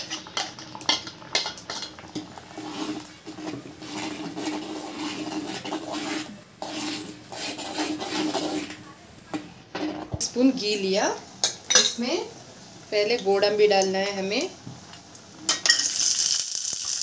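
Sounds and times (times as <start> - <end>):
spoon scraping a cooking pot: 0.0 - 8.8.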